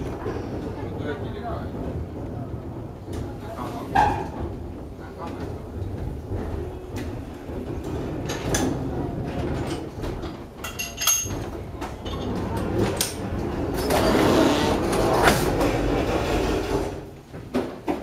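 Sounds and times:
cable car wheels rumbling: 0.0s - 17.9s
metal clanks: 9.6s - 13.2s.

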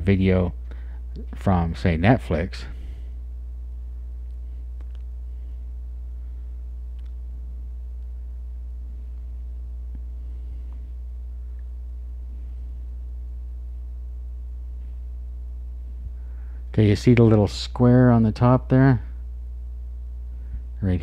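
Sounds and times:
electrical mains hum: 0.0s - 21.0s
faint clicks: 4.2s - 5.1s, 6.9s - 7.2s.

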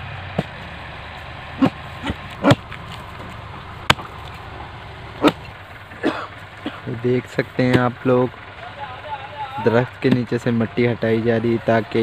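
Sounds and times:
low engine hum: 0.0s - 12.0s
axe striking soil and roots: 2.0s - 4.5s, 5.2s - 5.5s.

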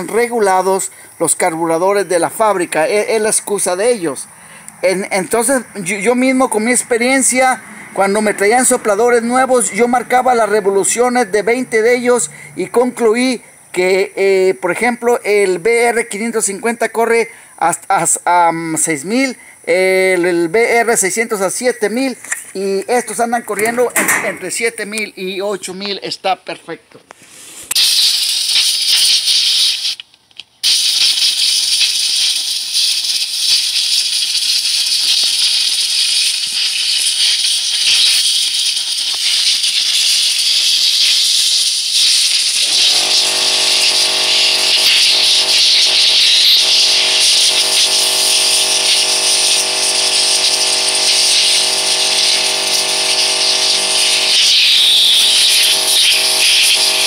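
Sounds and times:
compressed air hissing: 0.0s - 1.9s, 3.3s - 12.8s, 19.2s - 20.2s, 20.9s - 24.8s, 27.1s - 30.0s, 30.6s - 57.0s
steady multi-pitched hum: 0.0s - 15.7s, 19.0s - 25.8s, 42.6s - 57.0s.

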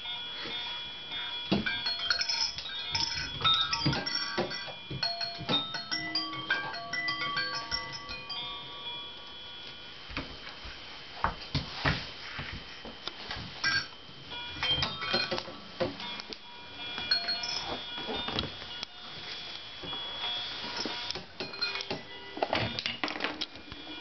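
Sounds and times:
electronic toy chime tones: 0.0s - 9.9s, 13.6s - 19.1s, 19.8s - 23.0s
plastic toys clacking and knocking: 1.6s - 6.8s, 14.6s - 16.0s, 21.2s - 23.6s.

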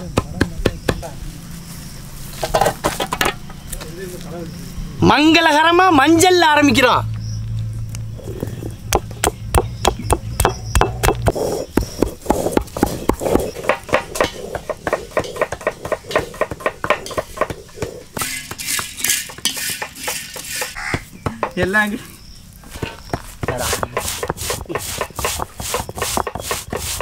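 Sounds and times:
stone roller grinding: 10.4s - 21.6s, 22.6s - 27.0s
spices rattling in iron wok: 13.0s - 20.8s.

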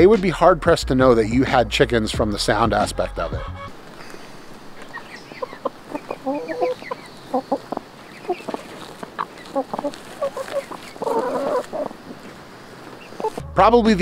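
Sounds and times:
hens clucking: 3.3s - 13.4s
loud hen call: 5.4s - 8.6s.

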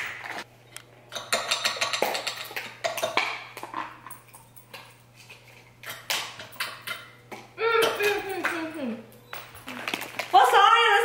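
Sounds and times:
kitchenware clattering on countertop: 1.1s - 4.8s.

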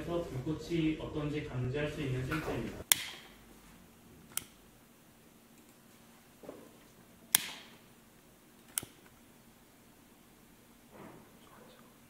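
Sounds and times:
sharp clicks: 2.8s - 3.4s, 4.3s - 4.6s, 7.3s - 7.8s, 8.6s - 9.2s.

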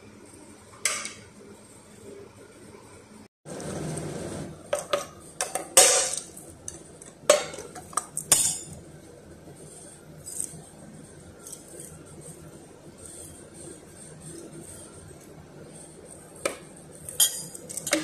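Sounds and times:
spoon clinking against metal tin: 17.1s - 18.0s.

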